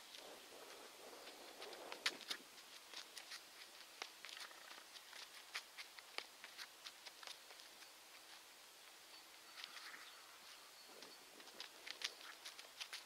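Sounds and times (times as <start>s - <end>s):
sneakers scuffing on asphalt: 0.7s - 8.5s, 11.4s - 13.0s.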